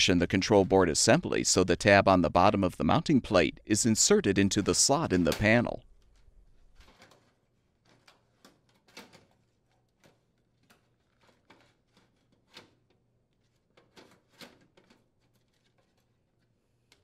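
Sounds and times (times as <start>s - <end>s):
clicks and rustles of handling: 4.6s - 17.0s.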